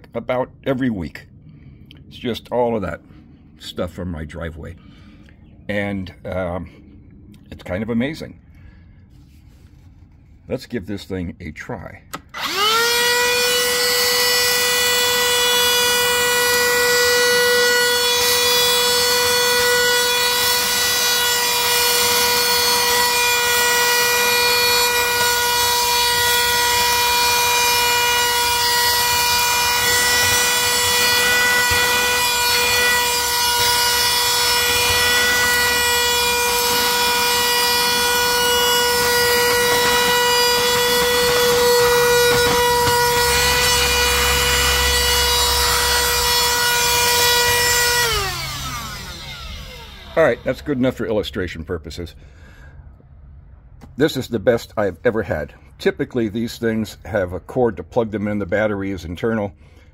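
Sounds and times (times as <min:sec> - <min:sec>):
hand vacuum motor whining: 0:12.1 - 0:51.0
grit being vacuumed: 0:12.4 - 0:50.8.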